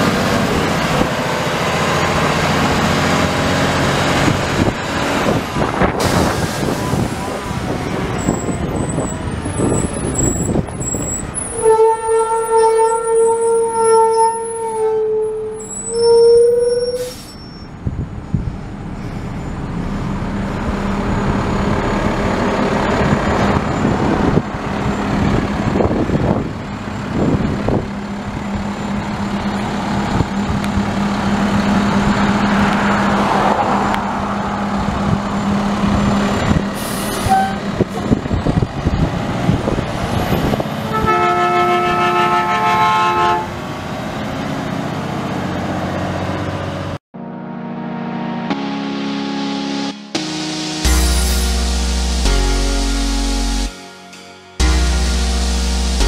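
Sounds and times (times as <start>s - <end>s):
garbage truck diesel engine: 0.0s - 47.6s, 50.1s - 56.0s
truck horn toot: 9.5s - 17.8s, 36.8s - 37.8s, 40.8s - 43.6s
multi-tone horn blast: 11.4s - 17.3s, 36.8s - 37.8s, 40.8s - 43.6s, 47.2s - 56.0s.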